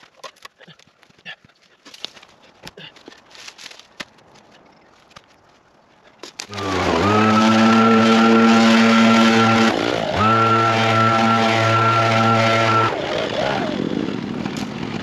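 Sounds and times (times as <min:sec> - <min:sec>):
footsteps on dirt trail: 0:00.0 - 0:07.1
branches and logs dropped: 0:01.8 - 0:05.4, 0:06.2 - 0:06.7
loud steady droning: 0:06.5 - 0:15.0.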